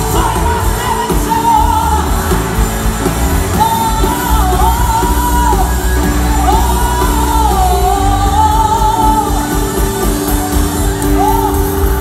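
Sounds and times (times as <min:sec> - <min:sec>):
heavy pulsing bass: 0:00.0 - 0:12.0
keyboard chords: 0:00.0 - 0:12.0
person singing long notes: 0:03.5 - 0:10.2.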